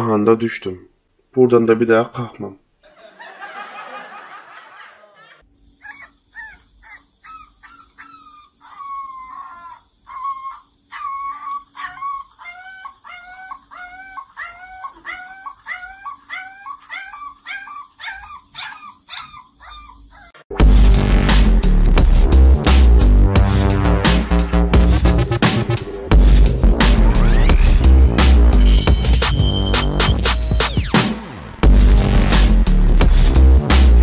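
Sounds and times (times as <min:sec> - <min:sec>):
puppy howling: 0:05.8 - 0:20.5
loud electronic music: 0:20.5 - 0:34.0.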